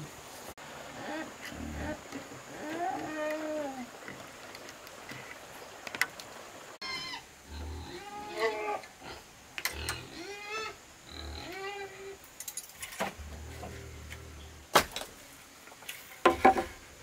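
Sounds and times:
animal calling: 6.8 - 9.2.

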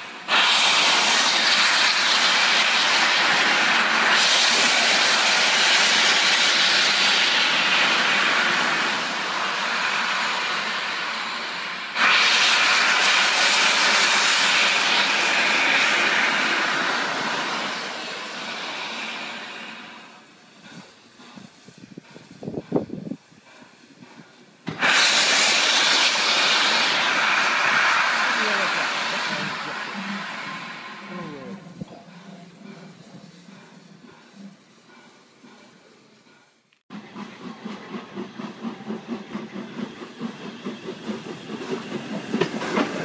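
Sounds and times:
locomotive steam hissing: 0.0 - 43.0.

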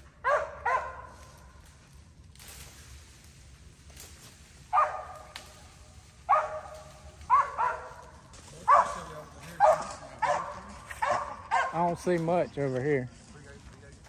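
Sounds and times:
dog barking: 0.2 - 1.2, 4.7 - 5.4, 6.2 - 11.9.

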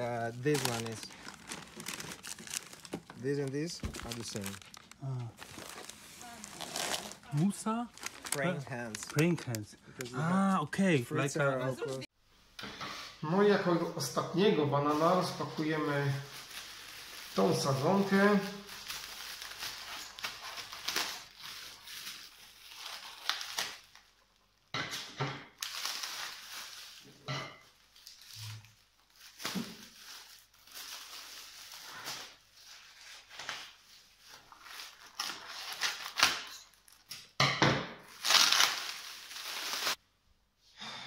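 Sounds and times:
paper bag tearing: 0.0 - 9.7, 38.1 - 40.0
plastic wrap crinkling: 0.0 - 10.4, 14.9 - 24.4, 25.6 - 27.2, 27.8 - 37.0, 38.1 - 40.0.

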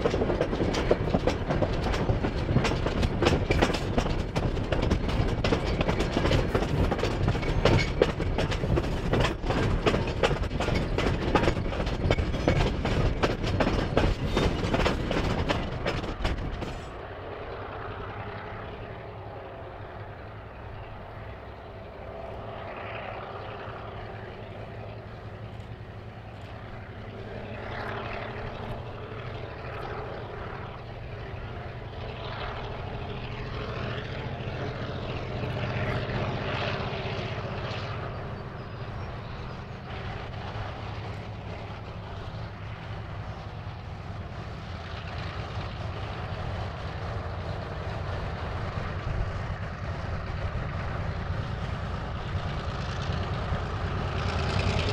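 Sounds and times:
diesel locomotive engine drone: 0.0 - 54.9.

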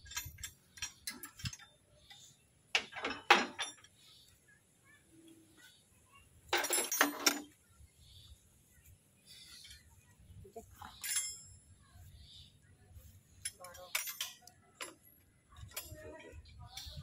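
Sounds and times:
metal hand tools clinking: 0.0 - 2.2, 2.8 - 4.0, 6.5 - 7.5, 10.9 - 11.6, 13.4 - 16.0.

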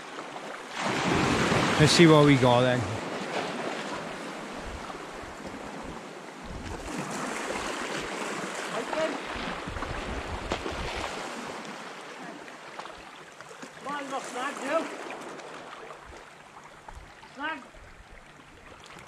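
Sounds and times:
surf washing on shingle: 0.7 - 4.1, 6.6 - 11.8, 13.7 - 15.2
wind buffeting microphone: 4.1 - 8.2, 9.4 - 11.2.

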